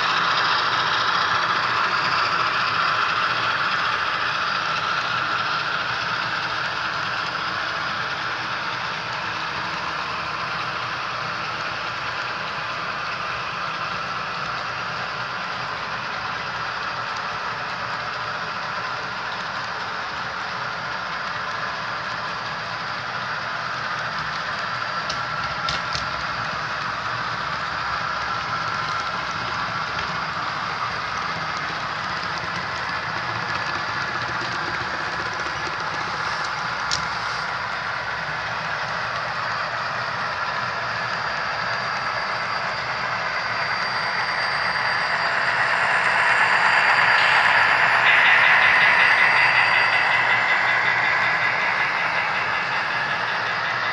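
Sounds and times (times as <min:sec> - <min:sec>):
model train wheels on rail: 0:00.0 - 0:53.9
thin high whine: 0:22.5 - 0:53.9.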